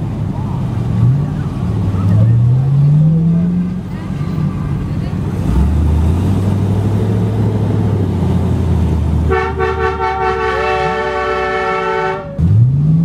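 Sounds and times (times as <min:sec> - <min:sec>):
car horn blast: 0:09.3 - 0:12.5.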